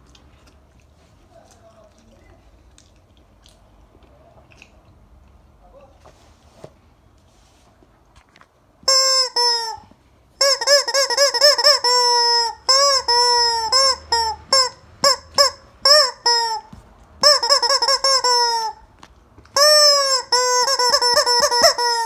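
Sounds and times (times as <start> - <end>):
rubber chicken toy squawking: 8.8 - 18.9, 19.5 - 22.0.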